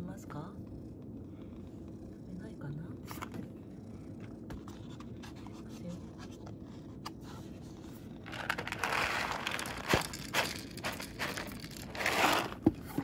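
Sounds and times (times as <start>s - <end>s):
plastic pouch crinkling: 8.3s - 12.6s.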